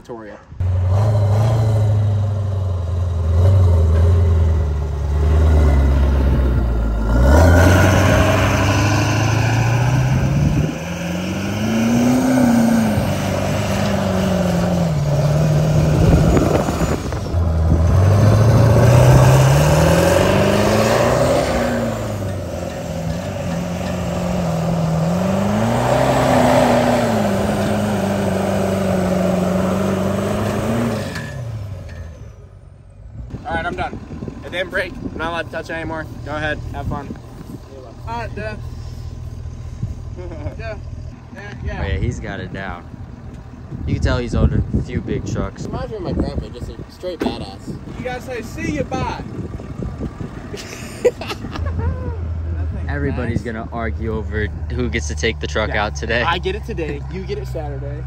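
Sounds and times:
pickup truck engine revving: 0:00.6 - 0:31.8
tires spinning on grass: 0:03.3 - 0:31.8.

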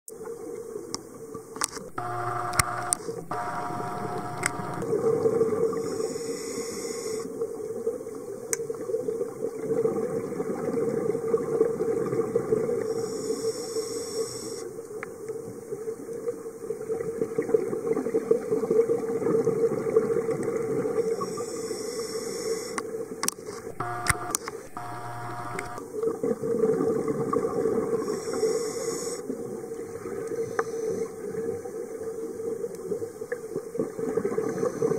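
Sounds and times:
sharp clicks: 0:01.6 - 0:04.8, 0:23.4 - 0:25.8
scuba regulator breathing hiss: 0:05.8 - 0:07.3, 0:12.9 - 0:14.7, 0:21.1 - 0:22.8, 0:28.0 - 0:29.2.

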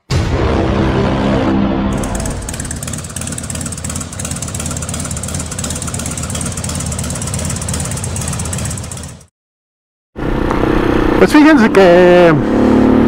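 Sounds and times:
engine idling: 0:01.9 - 0:09.3.

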